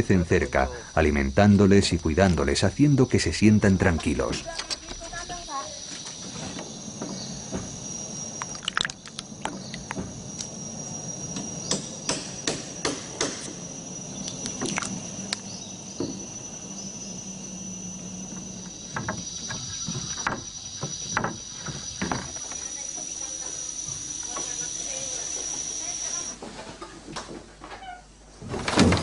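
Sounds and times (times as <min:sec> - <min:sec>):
insects droning: 0:00.0 - 0:29.0
sharp knocks and taps: 0:19.0 - 0:22.4.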